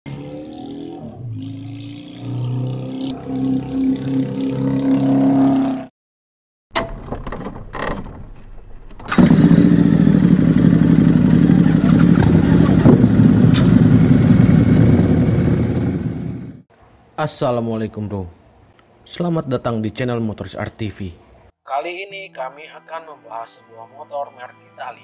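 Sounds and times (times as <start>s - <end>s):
motorcycle engine running: 9.1s - 16.6s.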